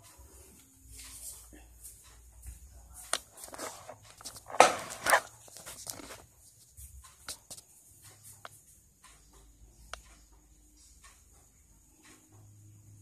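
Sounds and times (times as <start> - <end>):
camera handling knocks and rustles: 3.4 - 6.3.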